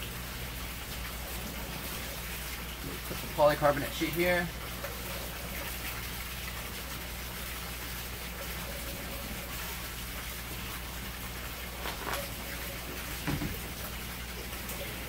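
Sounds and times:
plastic sheet handling: 0:11.8 - 0:12.3.

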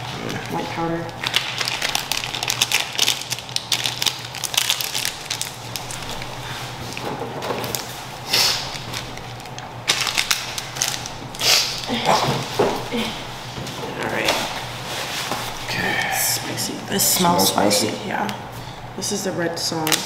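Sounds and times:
steady low hum: 0:00.0 - 0:20.0
rustling scrapes: 0:14.7 - 0:15.7.

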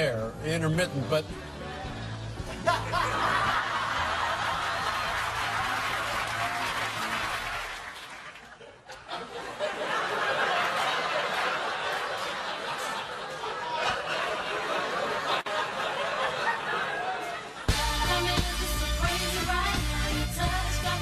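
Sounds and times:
studio audience laughing: 0:01.3 - 0:17.7.

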